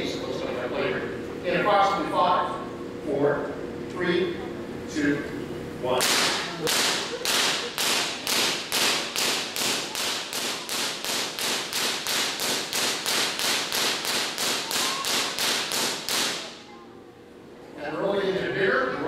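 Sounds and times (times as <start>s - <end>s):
high-voltage electric sparks cracking: 6.0s - 16.6s.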